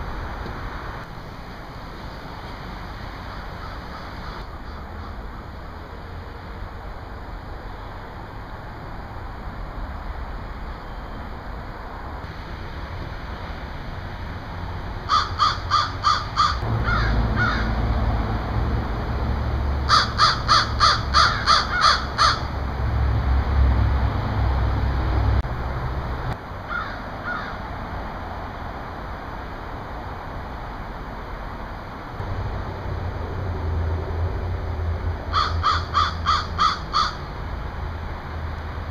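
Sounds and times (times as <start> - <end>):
crows cawing: 15.1 - 17.8, 19.9 - 22.5, 26.7 - 27.6, 35.3 - 37.3.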